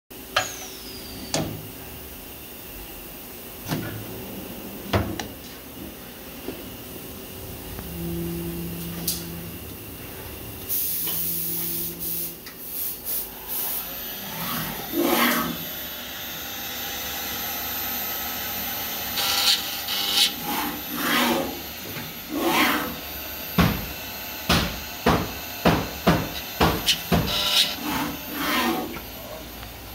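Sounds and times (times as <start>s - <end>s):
machine axis humming: 0.2s - 29.9s
compressed air hiss: 10.7s - 13.9s.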